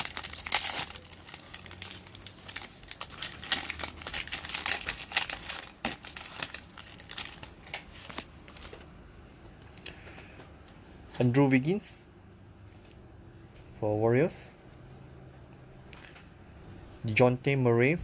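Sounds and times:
foil wrapper crinkling: 0:00.0 - 0:08.8.

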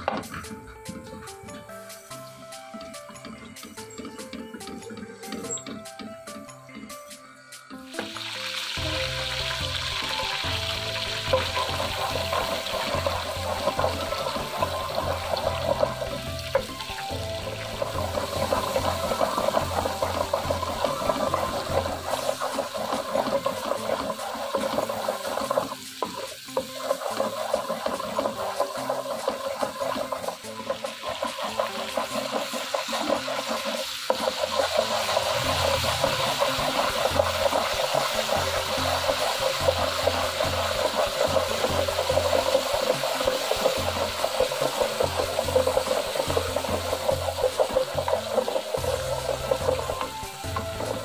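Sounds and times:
onion sizzling in oil: 0:00.0 - 0:51.0
liquid pouring into wok: 0:07.9 - 0:51.0
wooden spatula stirring: 0:11.0 - 0:51.0.

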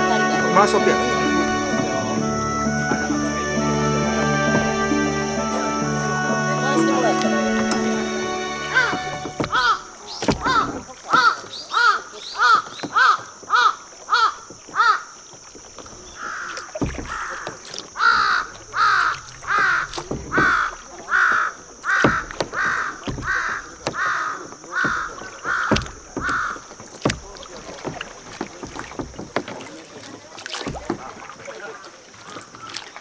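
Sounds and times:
kayak paddle splashing: 0:00.0 - 0:33.0
crow cawing: 0:07.4 - 0:15.1, 0:16.1 - 0:26.7.

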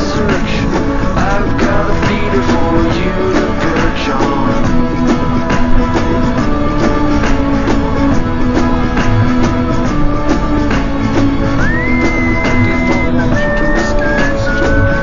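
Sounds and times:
instrumental music with steady beat: 0:00.0 - 0:15.0
high tone sliding up: 0:11.6 - 0:15.0.

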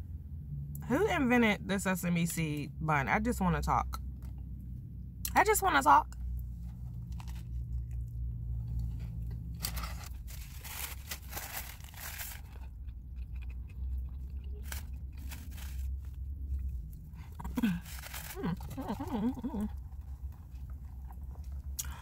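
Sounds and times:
steady low hum: 0:00.0 - 0:22.0
person chewing and crunching: 0:06.6 - 0:22.0.

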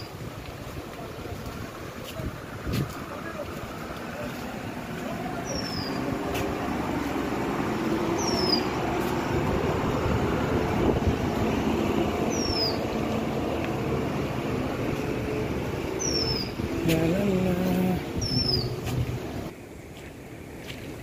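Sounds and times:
vehicle rumble: 0:00.0 - 0:21.0
high falling chirp: 0:18.1 - 0:18.8.

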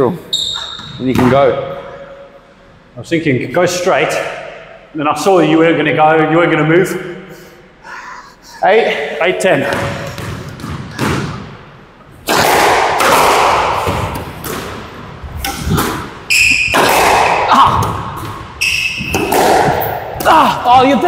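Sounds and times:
shoe squeaks on floor: 0:00.3 - 0:01.1, 0:16.3 - 0:16.9, 0:18.6 - 0:19.2
ball smacking court walls: 0:09.6 - 0:11.5, 0:12.2 - 0:21.0
squash ball hit with rackets: 0:09.6 - 0:11.6, 0:12.2 - 0:21.0.

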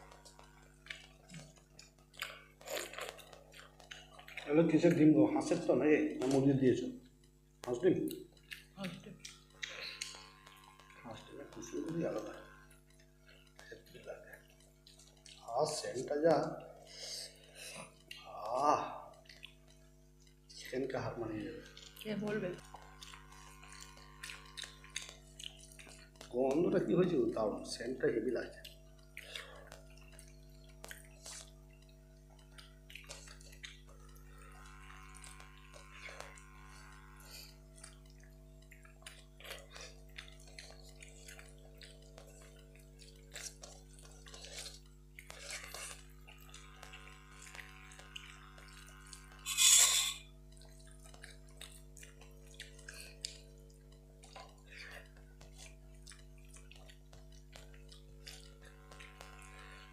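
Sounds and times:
low hum: 0:00.0 - 0:59.9
quiet chewing: 0:00.0 - 0:59.9
small clicks and taps: 0:21.7 - 0:26.7, 0:37.8 - 0:49.5, 0:50.5 - 0:59.9.

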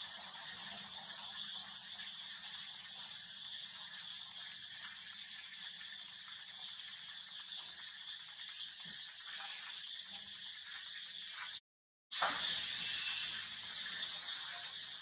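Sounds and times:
high-pitched background hiss: 0:12.2 - 0:15.0.

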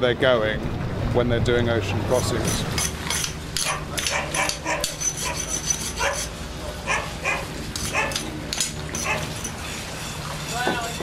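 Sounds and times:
scraper scraping boat hull: 0:02.3 - 0:06.4, 0:08.9 - 0:11.0
dog barking: 0:03.6 - 0:05.4, 0:06.0 - 0:08.2, 0:09.0 - 0:09.3.

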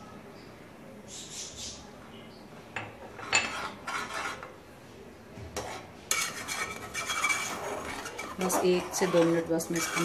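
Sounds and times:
metal spoon scraping pot: 0:03.0 - 0:04.6, 0:05.6 - 0:10.0.

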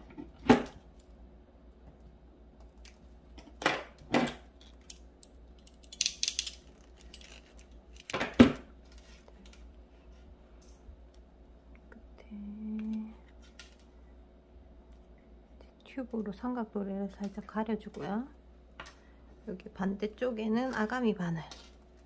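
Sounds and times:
crimping pliers clicking: 0:04.6 - 0:08.2.

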